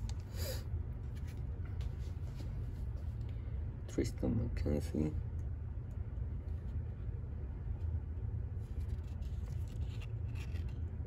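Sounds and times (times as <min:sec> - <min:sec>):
trading cards rustling: 0:08.7 - 0:10.9.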